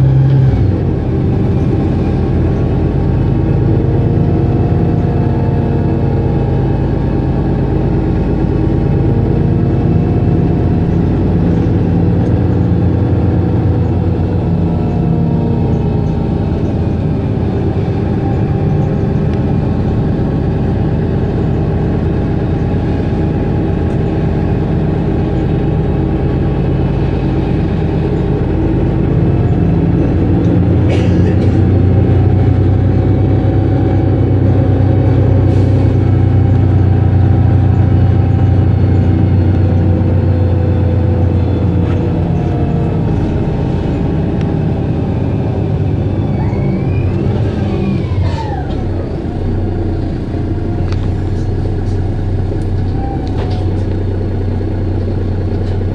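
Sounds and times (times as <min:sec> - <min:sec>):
bus diesel engine idling: 0:00.0 - 0:55.9.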